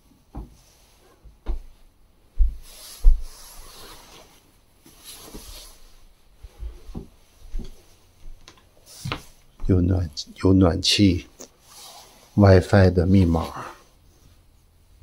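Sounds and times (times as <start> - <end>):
footsteps and thumps in a room: 0.1 - 3.6, 6.4 - 9.8
rustling: 0.6 - 9.7.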